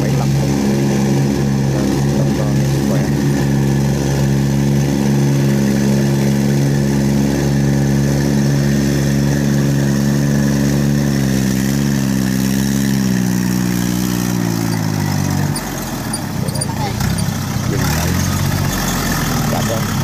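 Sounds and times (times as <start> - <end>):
tracked dumper diesel engine: 0.0 - 20.0.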